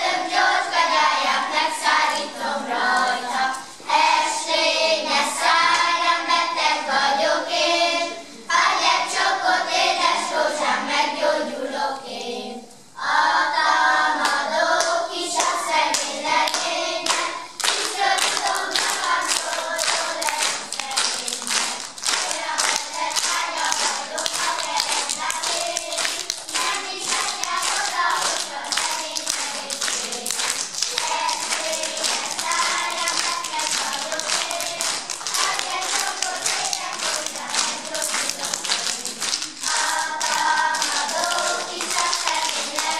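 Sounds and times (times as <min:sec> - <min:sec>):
children's choir singing: 0:00.0 - 0:42.9
audience applause: 0:17.6 - 0:42.9.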